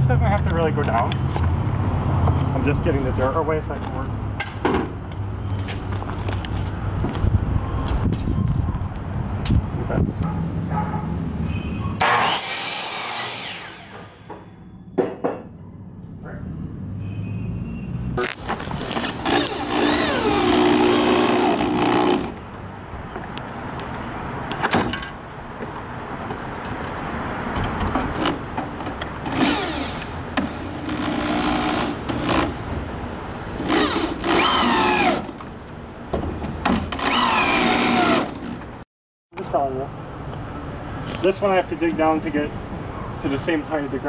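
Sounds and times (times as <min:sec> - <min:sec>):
electric drill boring into wood: 0:19.0 - 0:22.3, 0:29.3 - 0:32.5, 0:33.7 - 0:35.3, 0:37.0 - 0:38.5.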